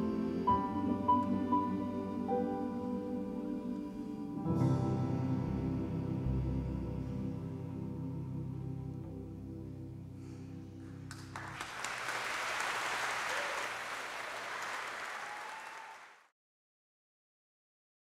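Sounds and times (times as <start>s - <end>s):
audience applause: 11.0s - 16.3s.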